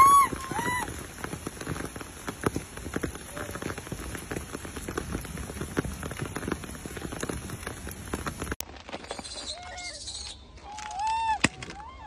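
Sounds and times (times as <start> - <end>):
rain pattering on leaves: 0.0 - 9.2.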